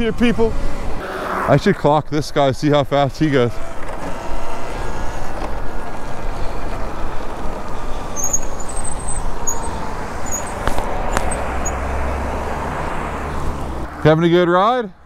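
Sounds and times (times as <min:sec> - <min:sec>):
electric motor whine: 0:03.5 - 0:12.2.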